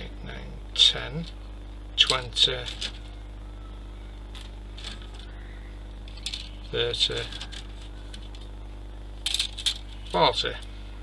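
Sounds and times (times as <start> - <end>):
steady low hum: 0.0 - 11.0
plastic parts rattling: 2.1 - 3.1, 4.3 - 5.3, 6.1 - 8.5, 9.2 - 10.6.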